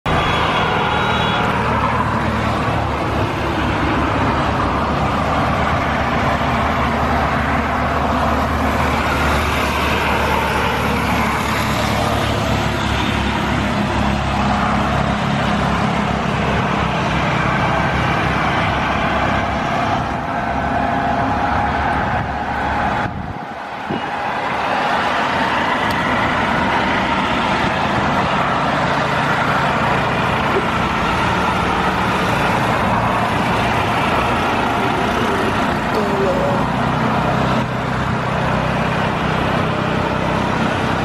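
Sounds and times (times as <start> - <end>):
propeller drone: 25.2 - 41.0.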